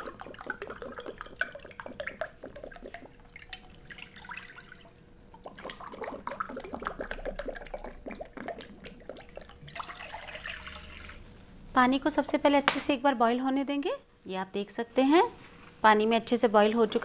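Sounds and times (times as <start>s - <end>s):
water pouring into a pan: 0.0s - 4.9s, 5.5s - 11.2s.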